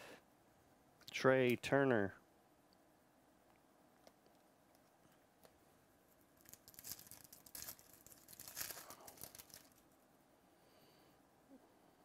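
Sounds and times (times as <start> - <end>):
foil wrapper tearing and crinkling: 6.4 - 9.8.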